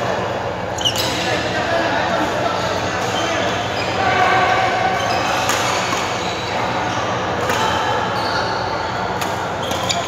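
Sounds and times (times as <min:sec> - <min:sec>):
background hubbub of hall: 0:00.0 - 0:10.0
sneaker squeaks on court: 0:00.8 - 0:01.3, 0:09.5 - 0:10.0
racket hitting shuttlecock: 0:09.2 - 0:10.0.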